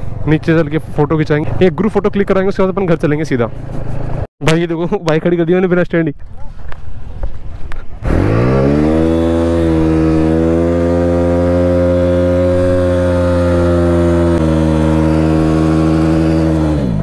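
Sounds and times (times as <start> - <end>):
motorcycle engine revving: 8.0 - 17.0.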